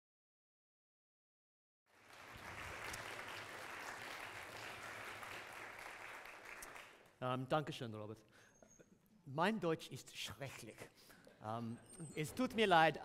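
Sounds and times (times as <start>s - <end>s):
audience applauding: 1.9s - 7.2s.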